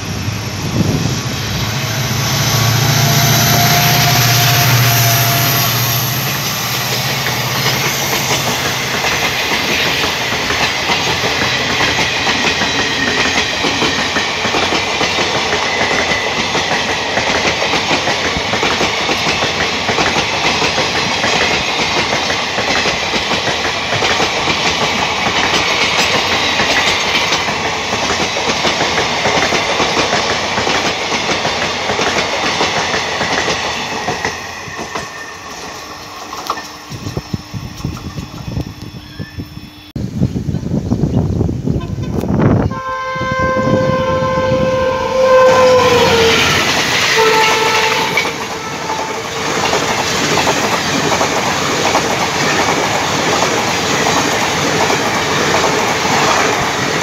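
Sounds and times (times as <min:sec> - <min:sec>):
diesel locomotive engine drone: 0:00.0 - 0:57.0
train wheels on rails: 0:00.0 - 0:57.0
clickety-clack over rail joints: 0:06.8 - 0:37.2, 0:46.1 - 0:57.0.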